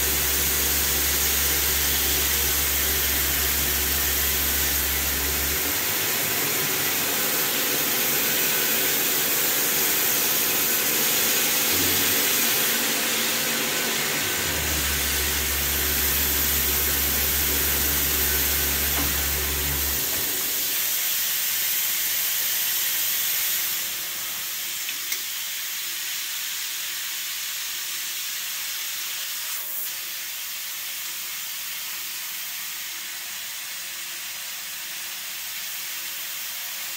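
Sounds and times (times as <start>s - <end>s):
lathe humming: 0.0s - 21.0s
coolant nozzle hissing: 0.0s - 24.0s.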